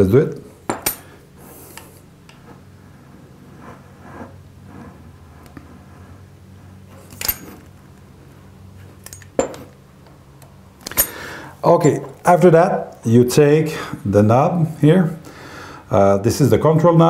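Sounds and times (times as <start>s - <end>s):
steady low hum: 0.0s - 17.0s
metal clinks: 0.7s - 1.1s, 9.0s - 9.7s, 10.9s - 12.1s.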